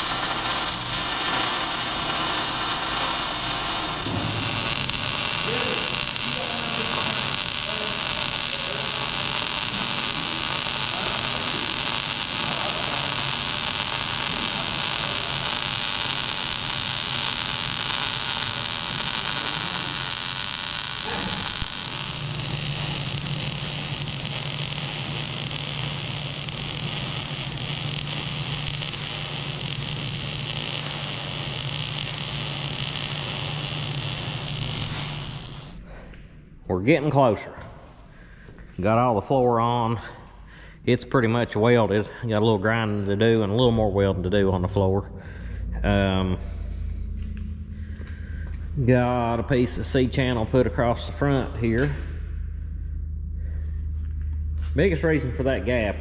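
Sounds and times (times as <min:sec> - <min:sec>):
welding arc hissing and crackling: 0:00.0 - 0:35.8
low steady hum: 0:00.0 - 0:56.0.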